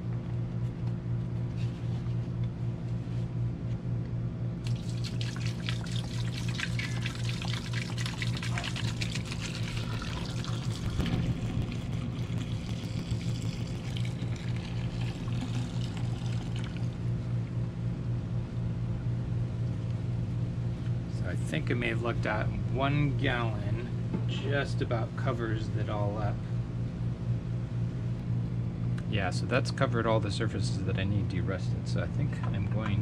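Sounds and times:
air conditioner hum: 0.0 - 33.0
liquid pouring into metal pot: 4.6 - 17.1.

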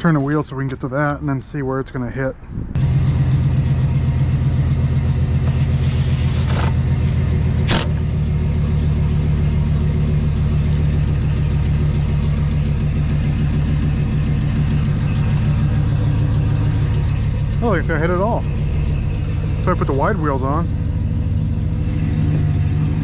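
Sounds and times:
pickup engine idling: 2.8 - 23.0
sharp click: 7.7 - 8.0.

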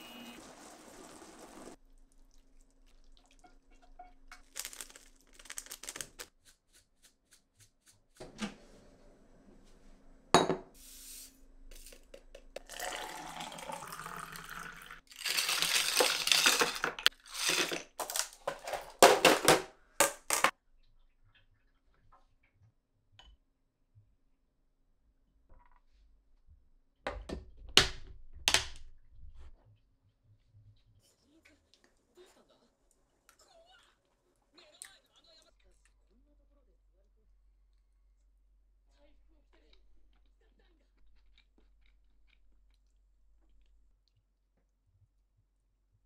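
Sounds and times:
water running from tap: 0.0 - 3.6, 12.6 - 16.6.

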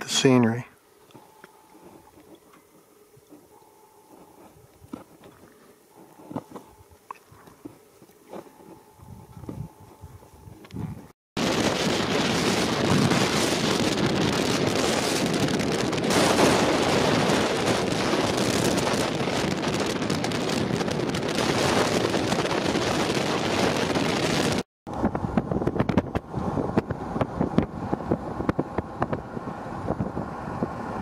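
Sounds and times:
vehicle road noise: 8.3 - 31.0
wind buffeting microphone: 8.7 - 31.0.

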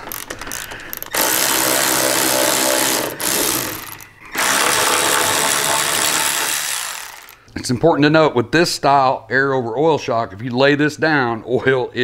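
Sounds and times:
cordless electric ratchet running: 0.0 - 7.4.

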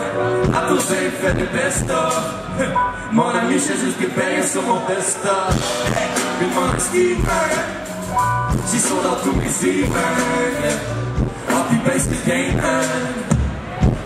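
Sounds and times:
live band with singing: 0.0 - 14.0
deep drum beat: 5.5 - 14.0.

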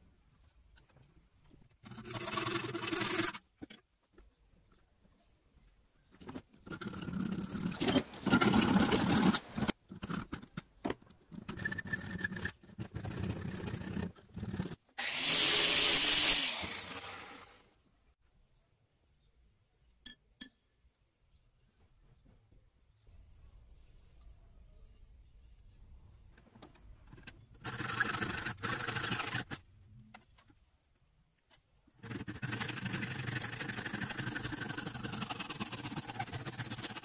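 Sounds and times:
saw rasping through wood: 6.8 - 9.7, 14.5 - 17.6, 27.6 - 29.6, 32.0 - 37.0.

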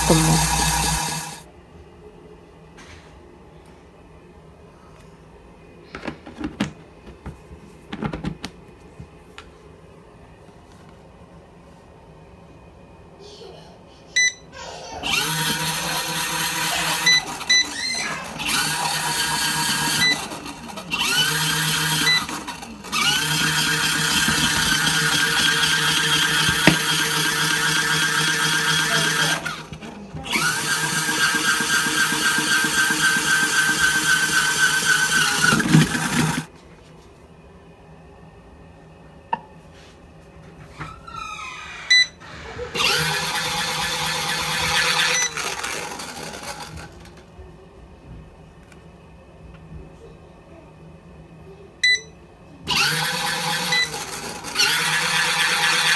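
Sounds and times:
washing machine motor running: 0.0 - 1.5, 14.6 - 36.5, 40.8 - 49.9, 51.8 - 55.9.

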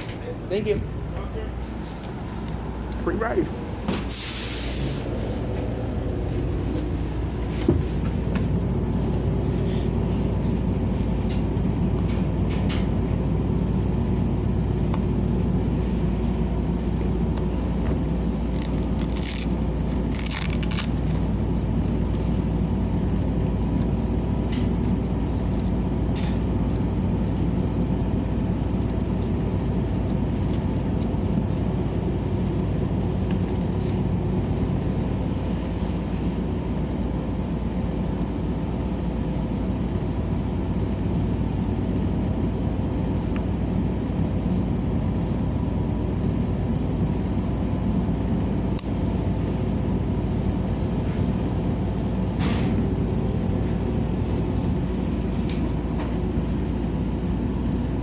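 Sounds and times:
bus engine running: 0.0 - 58.0
road noise rumble: 0.0 - 58.0
short hiss: 4.0 - 5.0.

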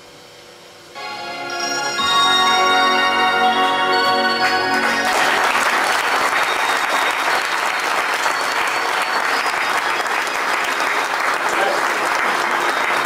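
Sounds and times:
music: 0.9 - 11.2, 12.0 - 13.0
audience applauding: 3.4 - 13.0.

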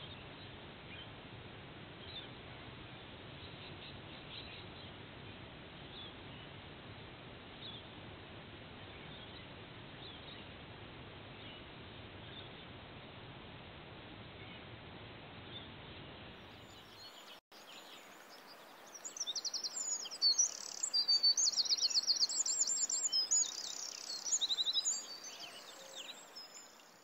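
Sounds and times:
faint steady hiss: 0.0 - 27.0
songbirds chirping and trilling: 15.5 - 27.0.

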